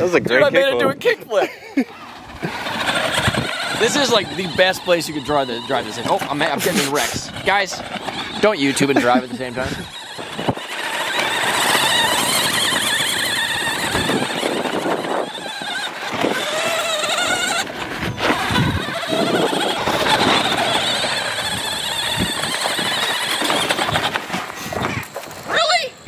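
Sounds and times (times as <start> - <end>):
rc truck motor whining: 0.2 - 26.0
tyres bumping over ground: 2.0 - 25.8.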